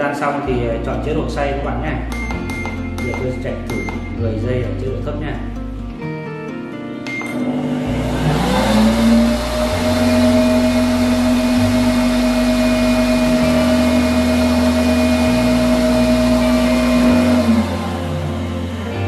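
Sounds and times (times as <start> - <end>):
blender motor running: 7.3 - 19.0.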